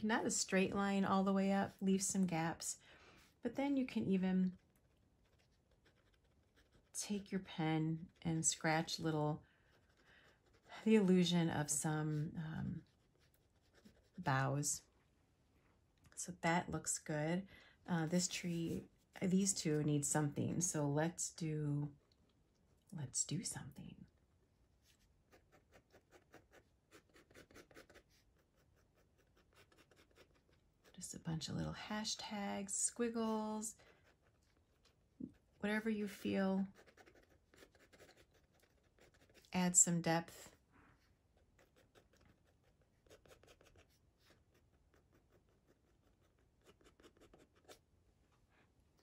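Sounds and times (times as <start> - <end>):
pen scratching on paper: 25.3 - 31.0, 36.6 - 39.5, 41.4 - 47.8.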